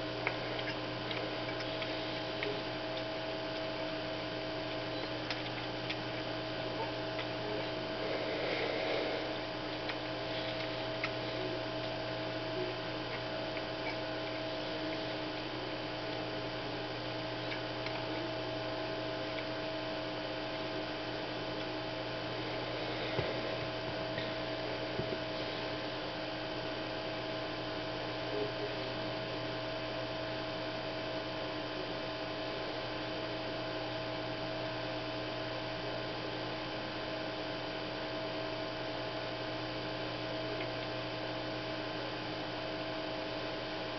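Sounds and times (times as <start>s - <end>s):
electrical hum: 0.0s - 43.9s.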